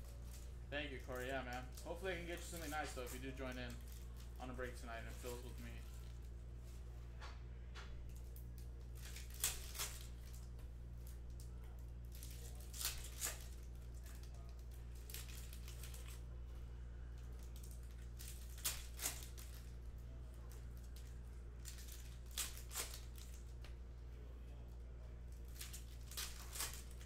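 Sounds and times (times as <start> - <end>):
low steady hum: 0.0 - 27.0
trading cards snapping: 25.5 - 27.0.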